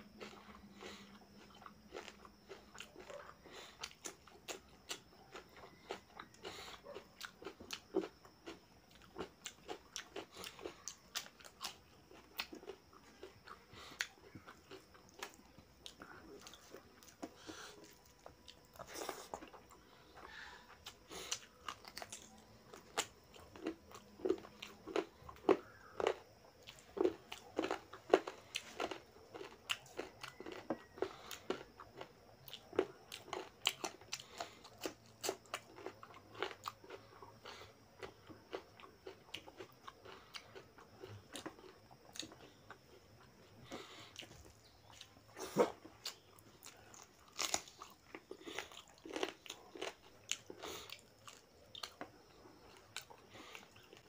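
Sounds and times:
crunchy cucumber bites: 0.1s - 54.0s.

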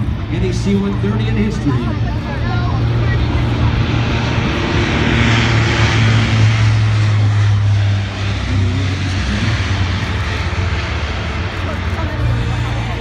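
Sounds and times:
turboprop engines droning: 0.0s - 13.0s.

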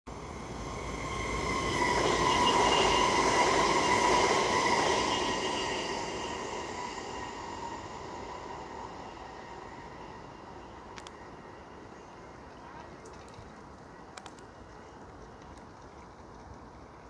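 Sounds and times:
electric train passing: 0.1s - 12.5s
high whine of train motors: 0.1s - 12.5s
wheel and rail noise: 0.1s - 17.0s.

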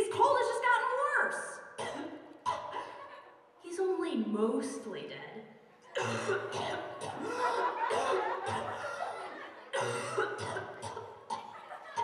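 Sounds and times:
person coughing harshly: 6.0s - 11.6s.

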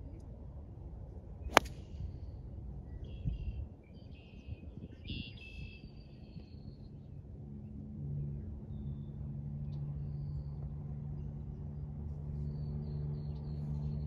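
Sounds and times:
golf club striking ball: 1.5s - 1.8s.

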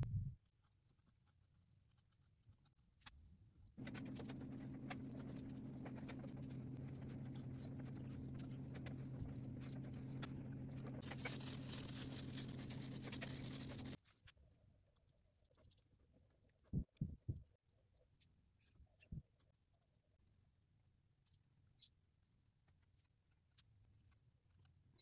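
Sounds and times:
carving blade scraping wood: 3.8s - 14.0s
low machine hum: 3.8s - 14.0s.

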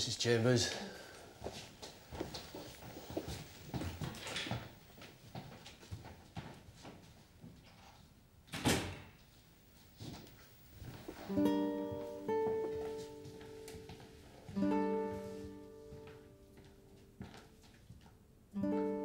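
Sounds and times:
plucked acoustic guitar chords: 11.0s - 16.4s.

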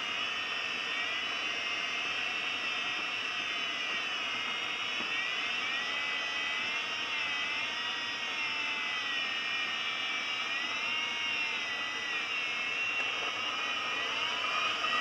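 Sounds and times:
airflow hissing and whistling: 11.3s - 15.0s.

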